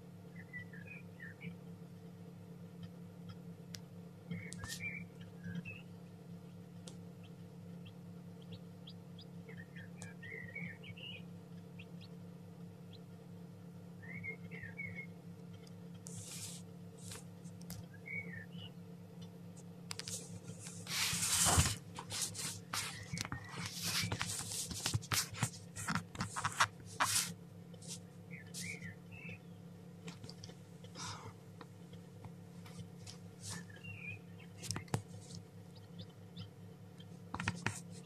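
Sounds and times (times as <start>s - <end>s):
steady low hum: 0.0s - 38.0s
chick peeping: 6.5s - 12.2s, 14.0s - 16.6s, 25.8s - 29.4s, 32.7s - 38.0s
crackling and rustling clicks: 21.5s - 28.0s, 30.0s - 31.0s, 34.6s - 35.4s, 37.3s - 38.0s.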